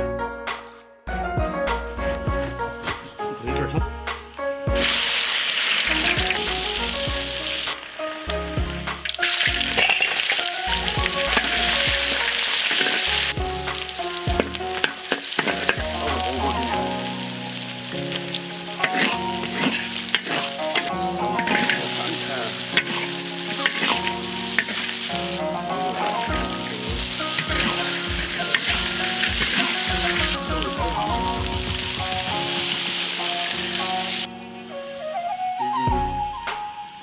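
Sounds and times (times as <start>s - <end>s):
background music: 0.0s - 37.0s
hot oil sizzling in a wok: 4.7s - 34.3s.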